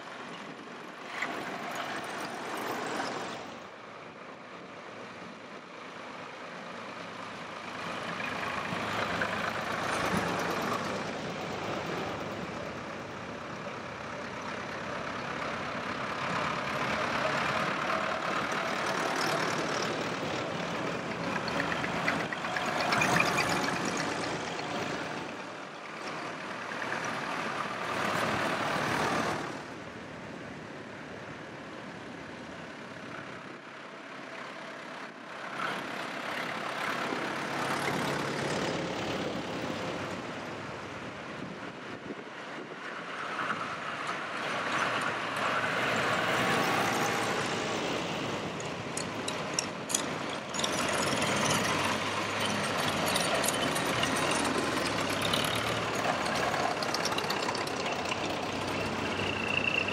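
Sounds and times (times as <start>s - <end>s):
tractors driving past: 0.0s - 59.9s.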